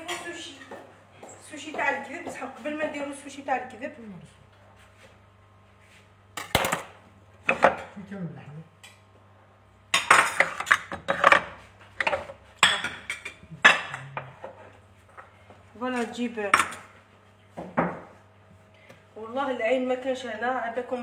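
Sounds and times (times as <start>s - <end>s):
cookware clattering on countertop: 9.9s - 14.7s.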